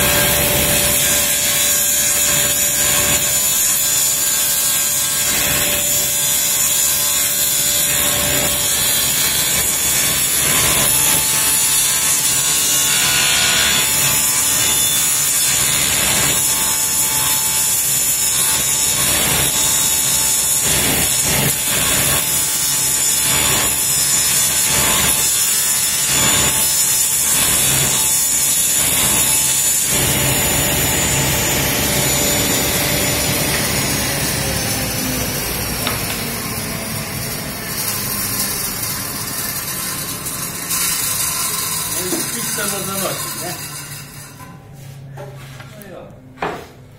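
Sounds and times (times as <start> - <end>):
panel saw cutting plywood: 0.0 - 44.3
saw winding down: 28.6 - 44.3.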